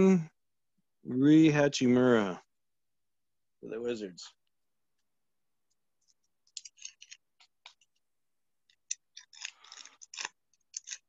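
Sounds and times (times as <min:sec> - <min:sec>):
cards clicking and scraping: 0:06.0 - 0:11.0
card pack crinkling: 0:08.8 - 0:11.0.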